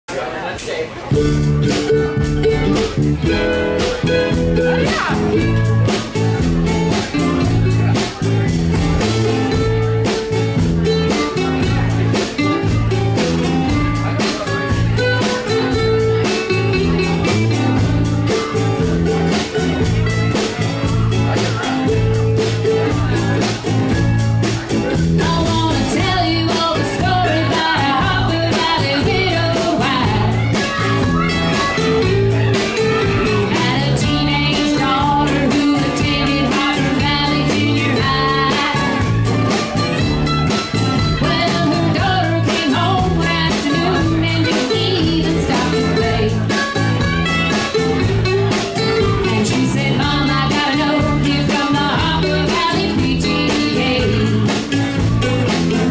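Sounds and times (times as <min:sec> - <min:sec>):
acoustic country band playing: 0:00.1 - 0:55.9
woman singing: 0:25.2 - 0:30.9, 0:33.4 - 0:39.2, 0:41.2 - 0:46.5, 0:49.2 - 0:54.6.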